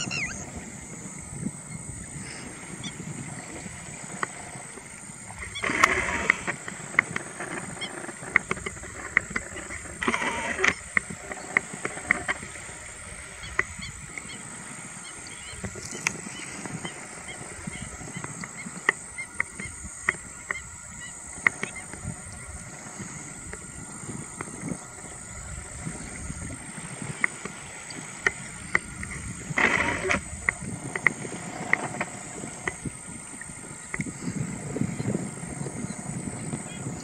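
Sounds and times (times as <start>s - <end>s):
terns calling: 0.0s - 1.0s.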